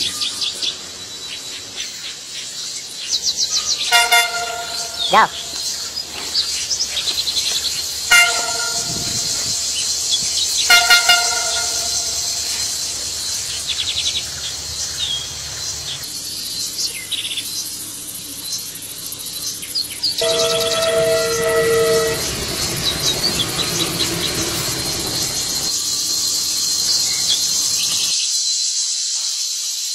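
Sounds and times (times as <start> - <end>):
insects chorus: 0.0 - 29.9
train horn blasts: 3.8 - 13.2, 20.2 - 25.7.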